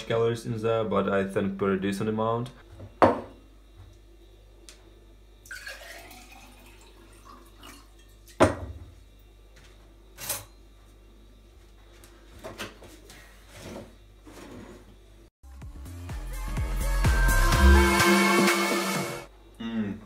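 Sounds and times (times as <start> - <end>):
water pouring into a glass: 5.5 - 8.4.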